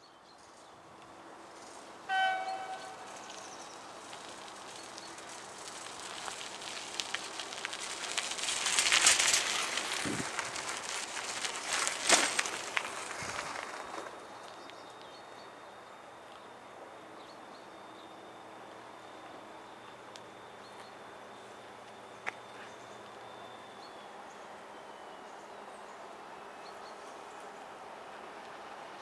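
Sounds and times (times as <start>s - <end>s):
bird chirps: 2.1s - 3.9s.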